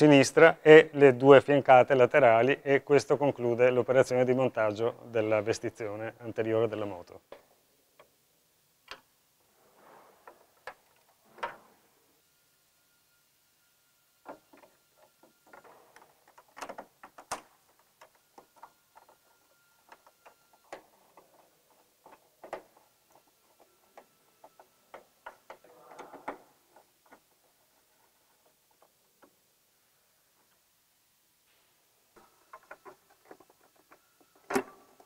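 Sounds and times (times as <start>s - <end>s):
plastic panels being handled: 14.2s - 29.6s, 32.2s - 35.0s.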